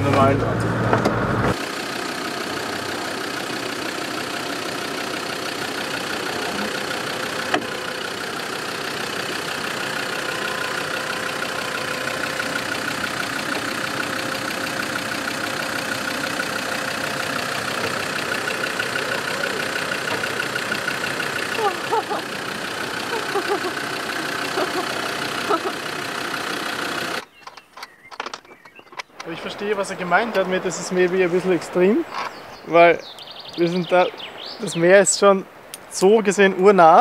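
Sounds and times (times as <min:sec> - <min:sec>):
diesel engine running at low revs: 0:00.0 - 0:27.4.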